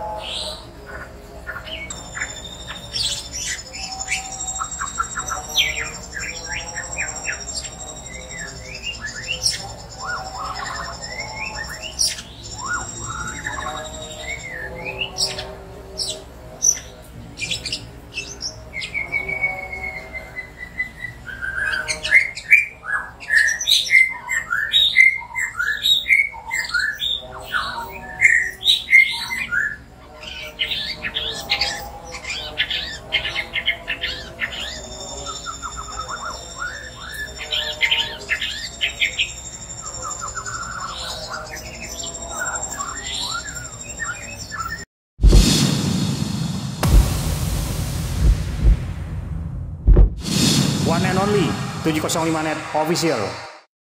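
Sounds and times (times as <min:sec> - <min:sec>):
bird singing whistles and chirps: 0:01.7 - 0:15.4, 0:34.0 - 0:44.8.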